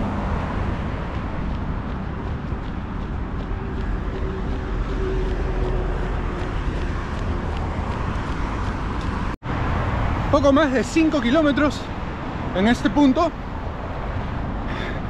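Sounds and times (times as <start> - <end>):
road traffic rumble: 0.0 - 15.0
footsteps on stone paving: 0.6 - 9.4.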